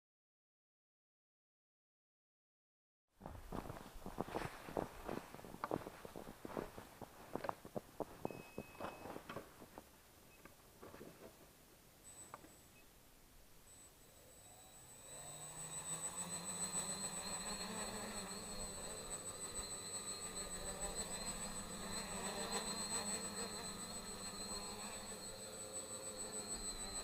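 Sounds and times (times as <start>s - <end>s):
quadcopter motors humming: 13.7s - 27.0s.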